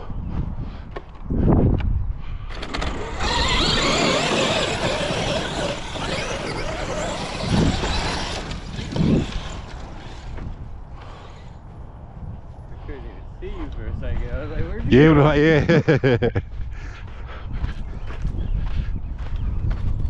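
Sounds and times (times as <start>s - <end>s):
electric motor whining: 2.5s - 10.8s.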